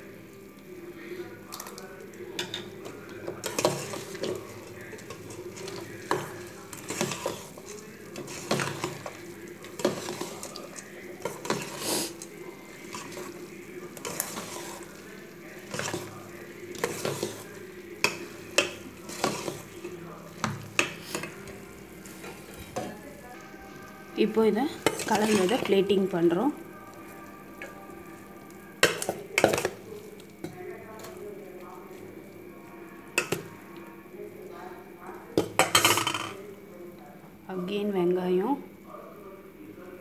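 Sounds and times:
metal spoon stirring in steel bowl: 1.5s - 32.2s.

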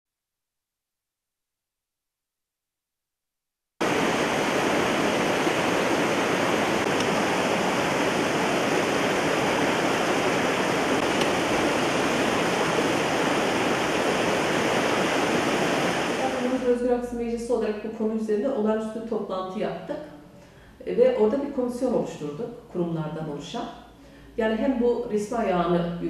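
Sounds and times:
water cascading over rocks: 3.8s - 16.6s.

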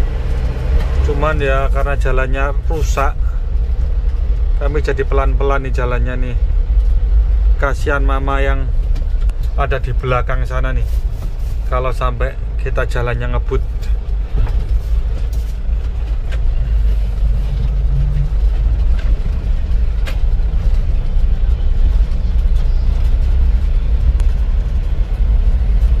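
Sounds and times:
vehicle low rumble driving: 0.0s - 26.0s
knocks and rattles over bumps: 8.6s - 26.0s.

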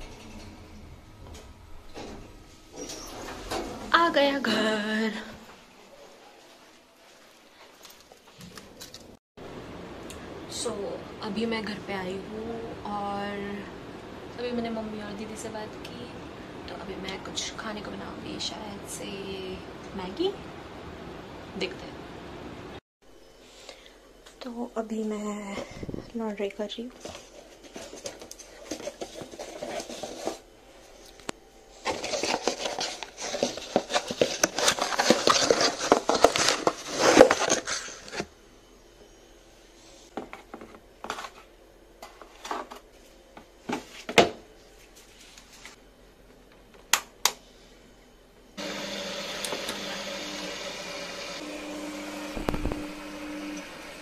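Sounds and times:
washing machine humming: 0.0s - 6.5s, 40.1s - 54.0s.

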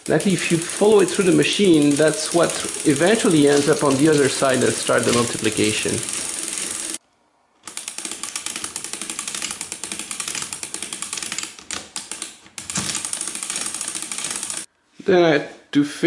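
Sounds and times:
mechanical calculator clicking: 0.0s - 7.0s, 7.6s - 14.7s.

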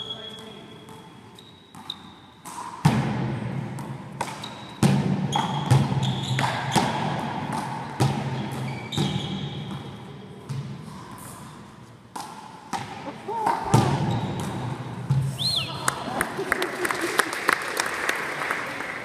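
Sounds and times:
trainers squeaking on floor: 0.0s - 2.4s, 4.4s - 6.9s, 8.3s - 10.0s, 14.0s - 14.6s.

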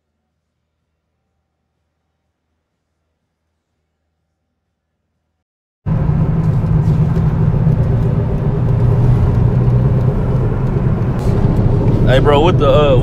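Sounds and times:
car cabin rumble: 5.9s - 13.0s.

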